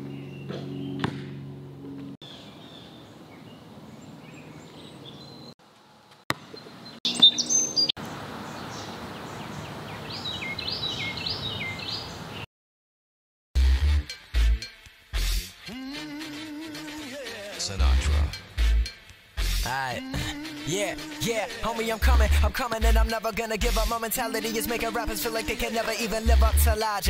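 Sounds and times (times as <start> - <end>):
birds chirping: 0.0 - 1.4, 2.2 - 5.6, 6.3 - 12.5.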